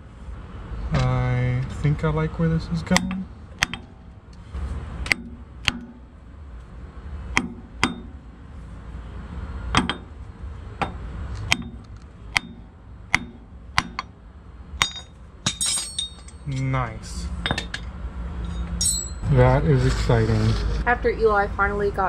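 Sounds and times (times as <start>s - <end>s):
hammer striking steel: 2.9s - 4.1s, 5.0s - 6.1s, 7.3s - 8.3s, 9.7s - 10.2s, 10.8s - 14.2s, 14.8s - 16.7s, 18.5s - 19.4s.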